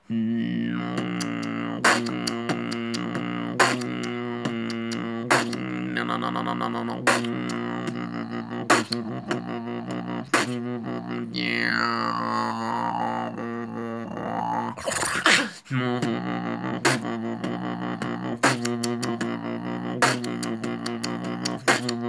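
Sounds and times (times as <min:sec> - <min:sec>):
beatboxing vocal bass drone: 0:00.0 - 0:22.0
beatboxed light clicks: 0:00.6 - 0:11.2, 0:15.8 - 0:22.0
beatboxed snare hits: 0:00.8 - 0:10.8, 0:16.0 - 0:22.0.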